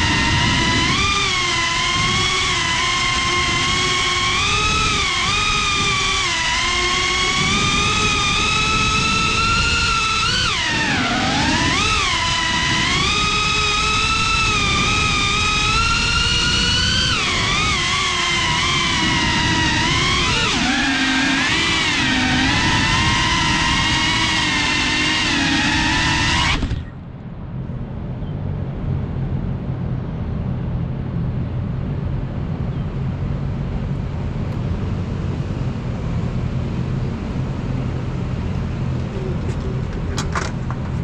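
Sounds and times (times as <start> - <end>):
drone motors and propellers whining: 0.0 - 41.0
low rumble of city traffic: 0.0 - 41.0
sharp clicks of drone handling: 39.5 - 41.0.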